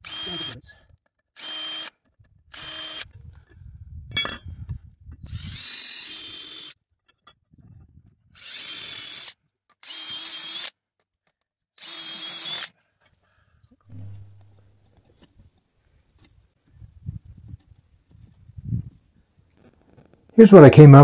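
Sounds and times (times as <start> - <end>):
drill boring into metal: 0.0 - 0.6, 5.3 - 6.7, 8.4 - 10.7, 11.8 - 12.7.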